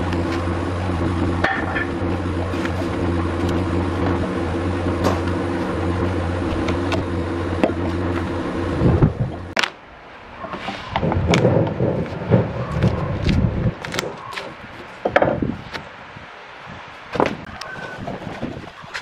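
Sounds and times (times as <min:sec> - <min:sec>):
machine hum: 0:00.0 - 0:10.4.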